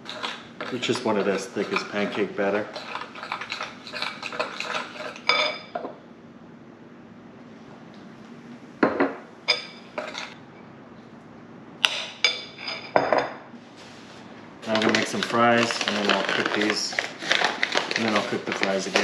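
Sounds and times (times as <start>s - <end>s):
spoon stirring in glass bowl: 0.0s - 5.8s, 9.5s - 10.4s, 14.7s - 19.0s
utensil clinking on glass: 2.8s - 5.8s.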